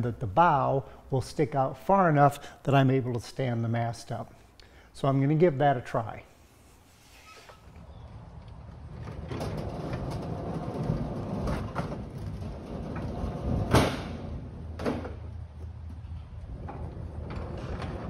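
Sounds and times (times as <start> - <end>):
metal sliding door rumbling: 7.8 - 15.3, 16.3 - 18.0
metal door clank: 12.7 - 15.2.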